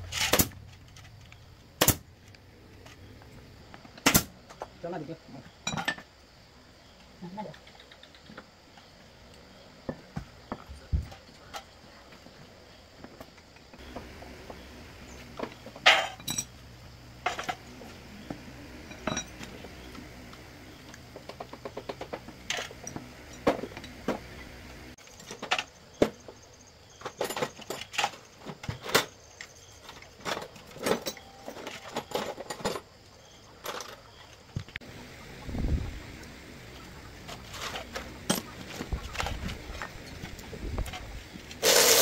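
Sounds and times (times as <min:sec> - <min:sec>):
metal tools clinking: 0:15.8 - 0:16.6, 0:18.9 - 0:19.5, 0:30.2 - 0:32.9.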